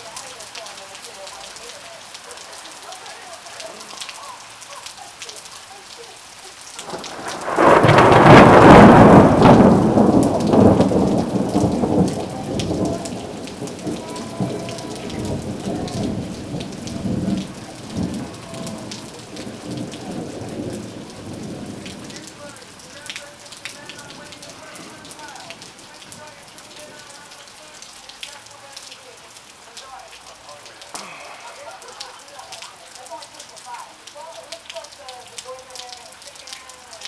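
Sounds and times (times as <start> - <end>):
steady rain falling: 0.0 - 37.0
thunder rumbling: 6.8 - 22.9, 23.5 - 27.0.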